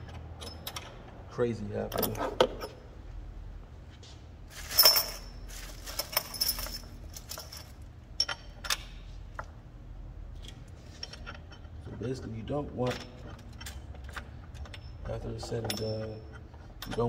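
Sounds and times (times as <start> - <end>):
steel nuts and washers clinking: 0.0 - 1.1, 1.8 - 2.8, 4.5 - 9.0, 10.4 - 17.0.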